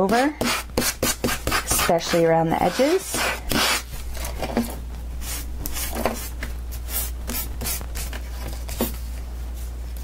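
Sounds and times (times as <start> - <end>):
sanding block rasping on cardstock: 0.1 - 3.8.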